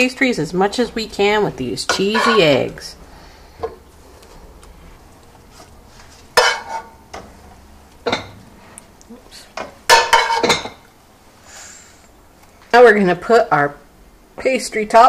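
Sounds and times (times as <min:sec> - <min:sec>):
metal spoon scraping a pan: 0:01.2 - 0:02.9, 0:06.3 - 0:07.0.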